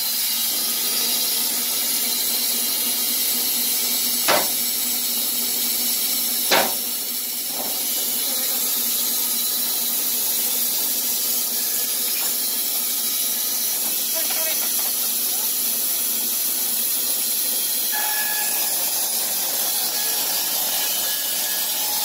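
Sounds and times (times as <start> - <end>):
band sawmill running: 0.0 - 22.0
sharp knocks: 4.3 - 4.6, 6.5 - 6.9.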